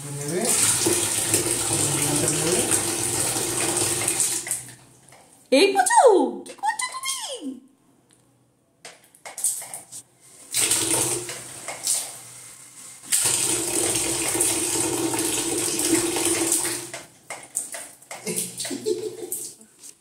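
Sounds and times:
tap water splashing into sink: 0.4s - 4.8s, 13.1s - 18.8s.

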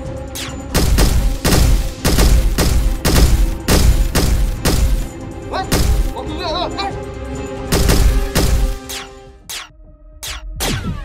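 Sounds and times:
background music: 0.0s - 11.0s
gunshot sound effects: 0.4s - 5.1s, 5.7s - 6.2s, 7.7s - 11.0s.

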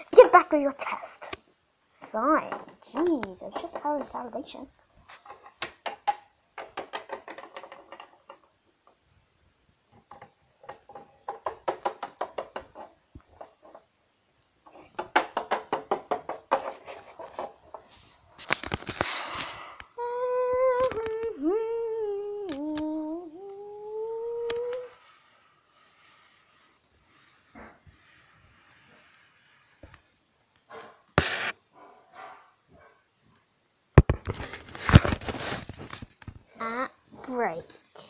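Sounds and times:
toy figures tapping on a table: 10.2s - 12.9s, 14.9s - 16.8s
rustling scrape: 16.5s - 19.8s, 24.9s - 29.8s, 34.4s - 36.2s
person humming: 20.0s - 25.1s.

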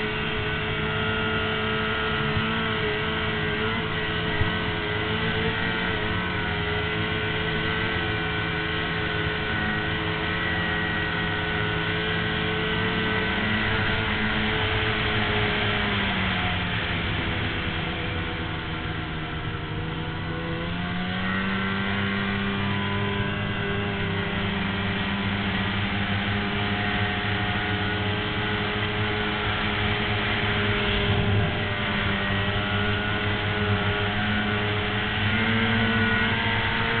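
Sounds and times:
snowmobile engine running: 0.0s - 37.0s
steady rushing noise: 27.9s - 37.0s.

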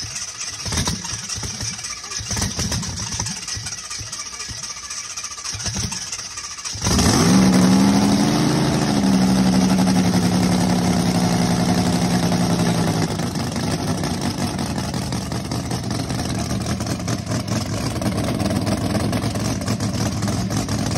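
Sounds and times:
car engine running and idling: 0.0s - 20.9s
engine cranking: 0.0s - 20.9s.

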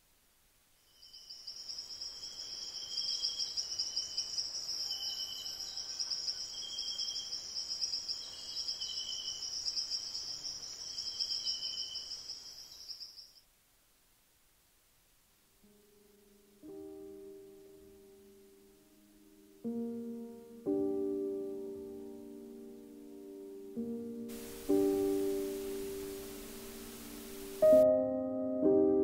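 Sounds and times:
cricket high-pitched trill: 0.8s - 13.4s
softer lower insect trill: 0.8s - 13.4s.

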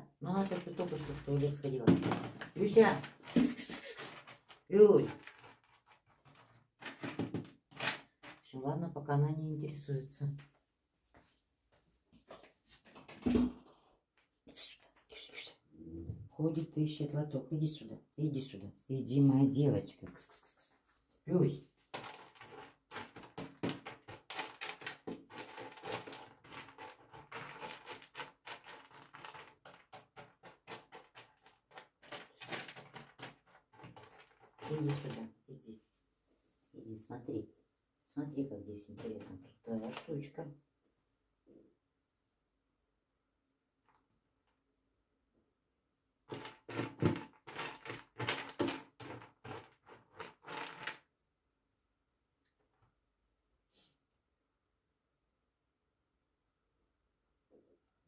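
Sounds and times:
rapid scratching and clicking: 22.0s - 35.2s.

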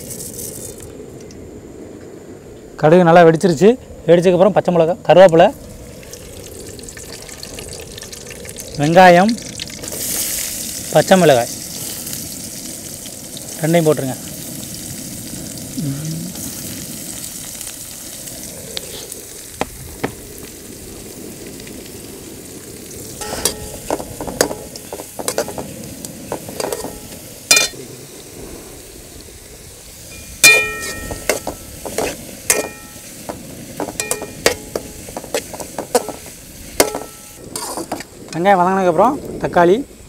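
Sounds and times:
onions sizzling in hot oil: 5.0s - 40.0s
metal spatula scraping a pan: 23.2s - 25.7s, 26.3s - 27.8s, 33.8s - 38.1s.

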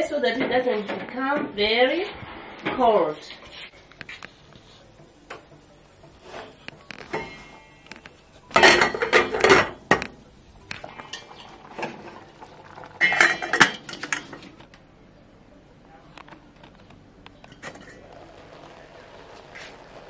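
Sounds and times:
metal cookware clattering: 8.5s - 10.2s, 10.9s - 12.2s, 13.0s - 14.5s.

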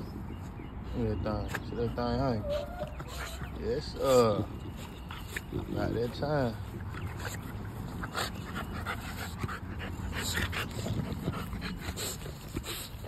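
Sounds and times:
dog panting: 0.0s - 13.0s.

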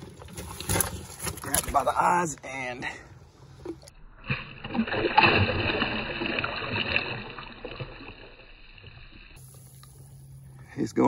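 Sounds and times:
water sloshing and bubbling: 0.0s - 10.6s
fish splashing into water: 4.2s - 10.0s.

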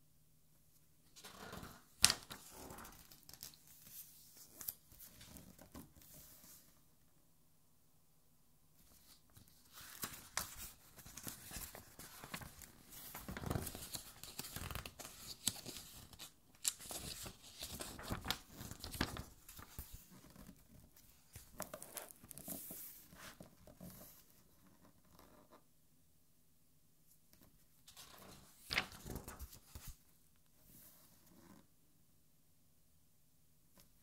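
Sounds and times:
glossy pages turning and rustling: 1.2s - 6.6s, 8.9s - 24.2s, 27.9s - 30.0s.

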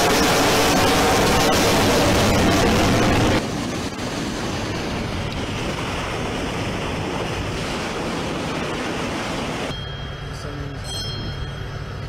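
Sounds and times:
sea water rushing along hull: 0.0s - 12.0s
wind buffeting microphone: 0.8s - 9.7s.

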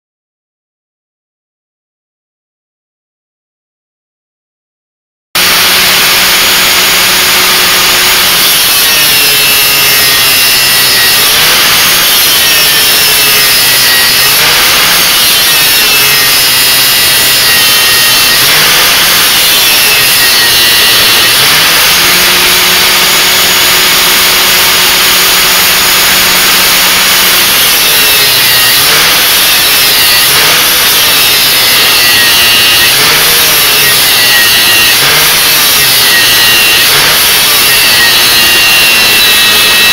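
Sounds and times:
grinder grinding metal: 5.4s - 39.9s.

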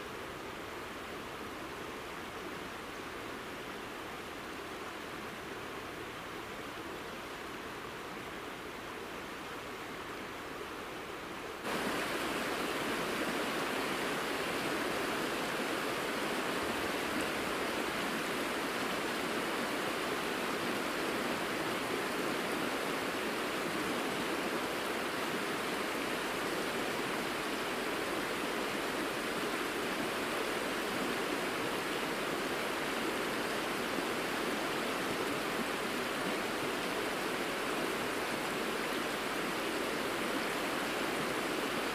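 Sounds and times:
river rushing over gravel: 11.6s - 41.9s.

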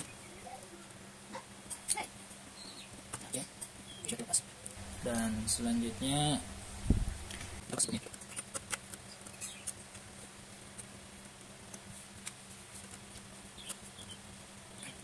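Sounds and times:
wires clicking and scratching: 7.2s - 14.2s.

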